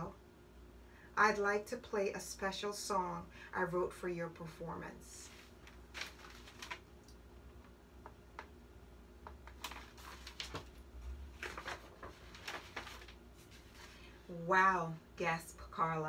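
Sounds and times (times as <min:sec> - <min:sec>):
paper pages rustling: 0:05.2 - 0:07.0, 0:09.3 - 0:14.2.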